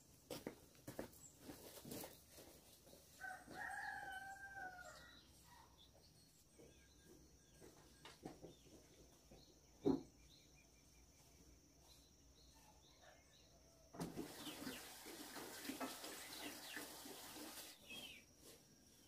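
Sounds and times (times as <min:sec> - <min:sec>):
rooster crowing: 0:03.2 - 0:05.3.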